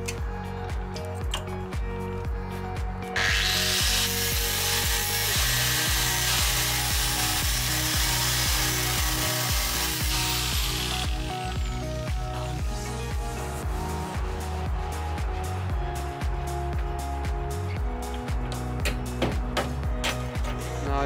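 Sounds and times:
background music with beat: 0:00.0 - 0:21.0
angle grinder cutting steel: 0:03.2 - 0:12.3.

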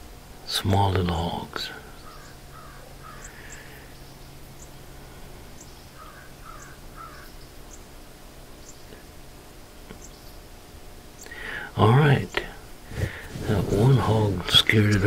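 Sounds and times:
faint low hum: 0:00.0 - 0:15.0
bird calls: 0:01.8 - 0:04.9, 0:05.5 - 0:09.1, 0:09.9 - 0:10.5.

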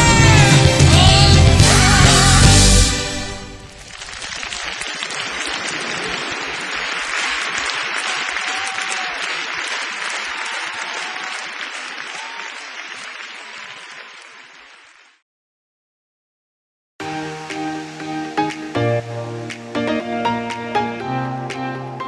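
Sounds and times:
audience applauding: 0:03.6 - 0:15.2.

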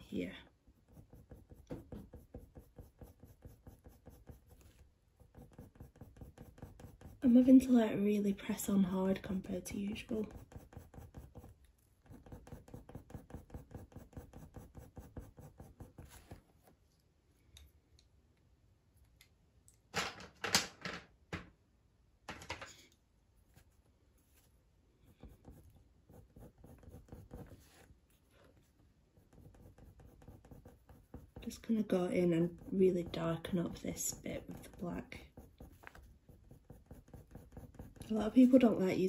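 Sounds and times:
pencil scratching on paper: 0:00.2 - 0:16.5, 0:25.0 - 0:27.9, 0:29.2 - 0:39.0
knocks and rustles: 0:19.9 - 0:21.6.

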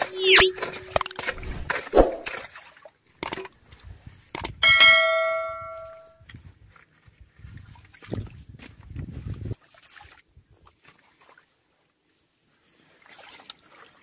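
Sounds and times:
notification bell ding: 0:04.6 - 0:06.1.

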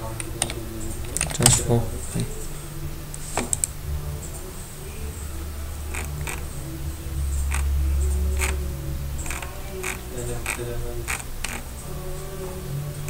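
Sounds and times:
low rumble: 0:00.0 - 0:13.0
computer mouse clicking: 0:05.9 - 0:06.4, 0:09.2 - 0:11.6.

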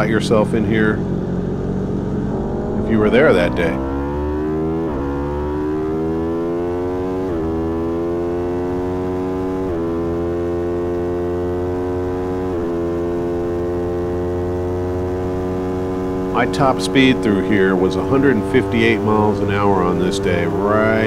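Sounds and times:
motorcycle engine at full throttle: 0:00.0 - 0:21.0.

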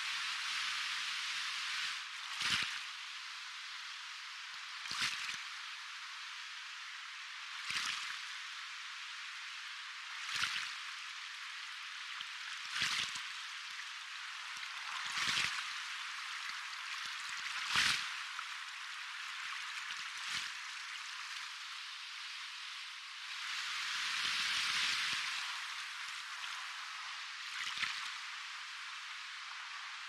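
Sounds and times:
soft ocean waves: 0:10.7 - 0:30.0.

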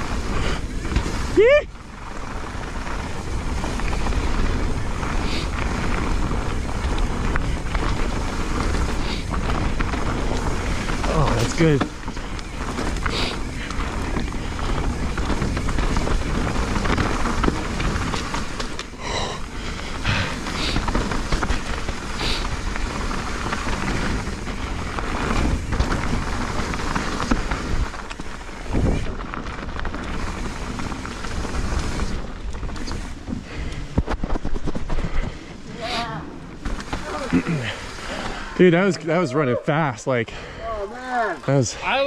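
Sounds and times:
tyre and wind noise: 0:00.0 - 0:42.0
bike knocking over bumps: 0:19.5 - 0:28.4.

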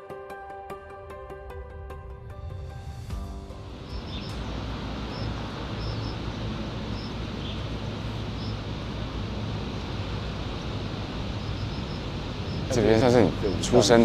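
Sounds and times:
distant traffic rumble: 0:03.5 - 0:14.0
faint high chirps: 0:03.8 - 0:08.6.

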